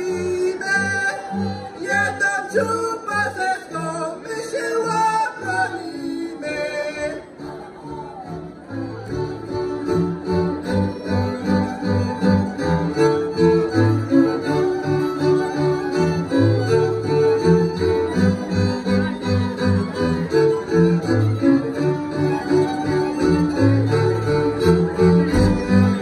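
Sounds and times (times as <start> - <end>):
fiddles playing folk melody: 0.0 - 26.0
bowed bass pulsing: 25.2 - 26.0.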